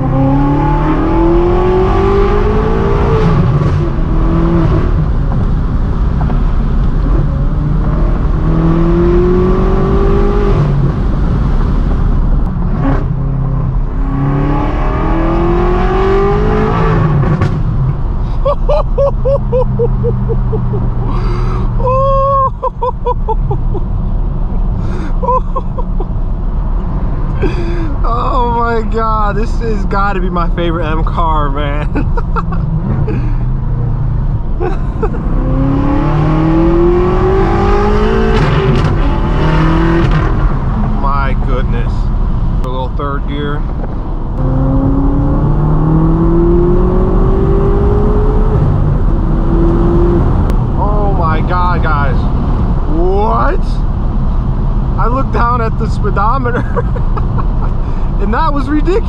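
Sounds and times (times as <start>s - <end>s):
car engine accelerating hard: 0.0s - 18.2s, 25.9s - 59.0s
car engine from inside cabin: 43.6s - 53.2s.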